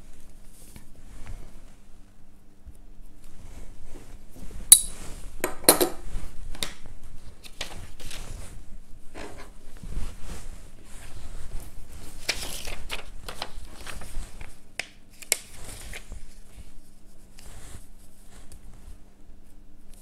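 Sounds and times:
fabric and paper rustling: 6.0s - 19.0s.

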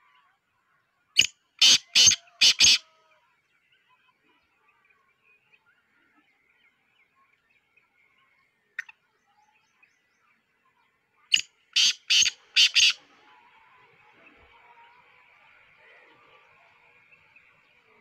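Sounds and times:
small birds chirping: 0.1s - 18.0s
francolin harsh call: 11.8s - 13.0s.

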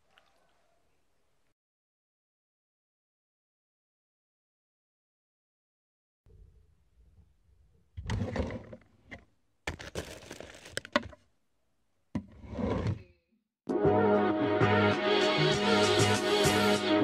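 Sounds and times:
camera handling rustling: 9.7s - 11.2s.

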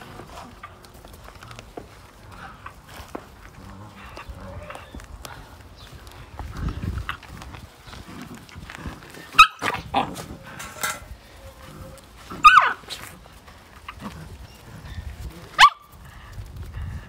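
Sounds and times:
puppies tussling: 0.0s - 17.0s
puppy yelping: 9.3s - 10.2s, 11.4s - 13.0s, 15.5s - 15.9s.

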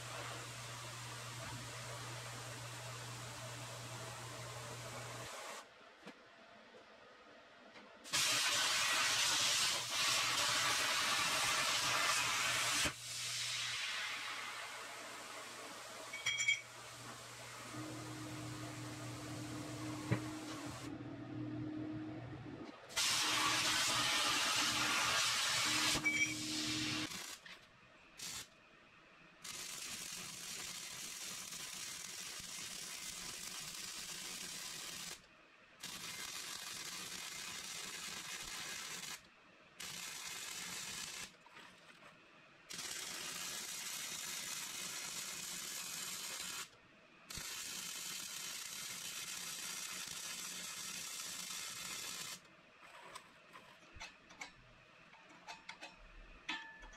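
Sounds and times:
plasma torch hissing: 8.1s - 16.0s, 22.9s - 27.4s
welding arc hissing: 8.1s - 20.9s, 23.0s - 27.5s, 28.2s - 28.5s, 29.4s - 35.2s, 35.8s - 39.2s, 39.8s - 41.3s, 42.7s - 46.7s, 47.3s - 52.4s
plasma cutting table humming: 14.6s - 27.1s.

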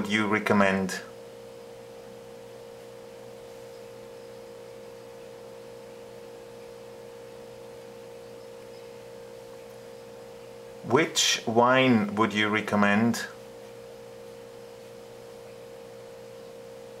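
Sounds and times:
steady mid-pitch hum: 0.0s - 17.0s.

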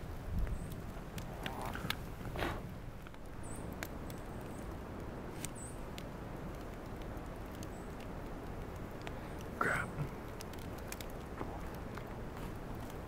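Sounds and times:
campfire crackling and popping: 0.0s - 13.0s
fire hissing: 0.0s - 13.0s.

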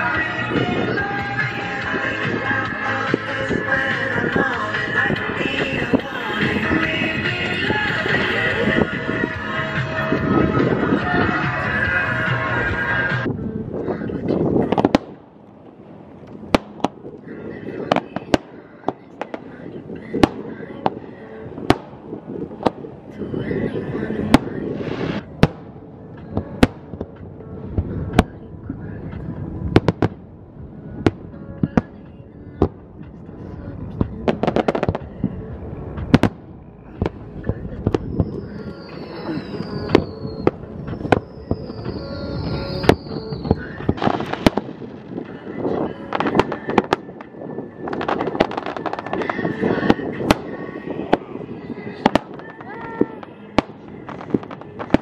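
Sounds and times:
fireworks bursting: 14.4s - 55.0s
firework hiss: 19.3s - 25.6s, 37.9s - 55.0s.

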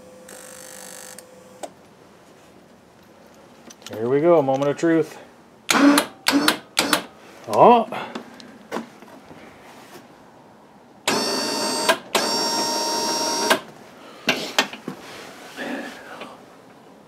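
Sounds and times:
electric winch whining: 11.1s - 13.6s.

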